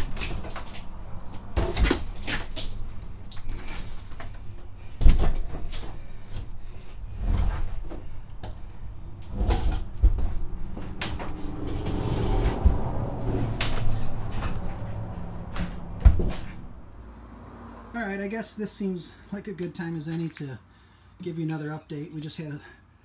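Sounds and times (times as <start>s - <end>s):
plywood scraping: 0.0s - 17.0s.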